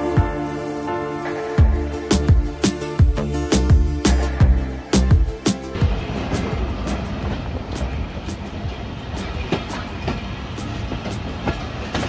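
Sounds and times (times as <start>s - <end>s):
train rumbling on track: 0.0s - 12.0s
wheels clicking on rails: 5.7s - 12.0s.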